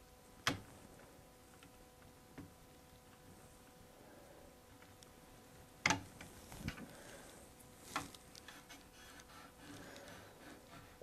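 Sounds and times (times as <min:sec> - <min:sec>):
chisel scraping epoxy: 0:08.4 - 0:11.0.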